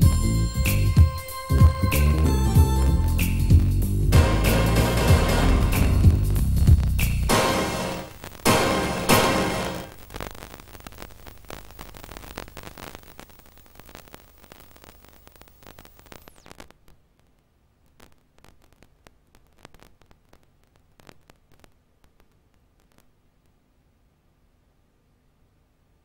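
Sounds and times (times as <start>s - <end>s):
videotape hiss and hum: 0.0s - 26.0s
theme tune final note: 4.1s - 6.4s, 7.3s - 9.9s.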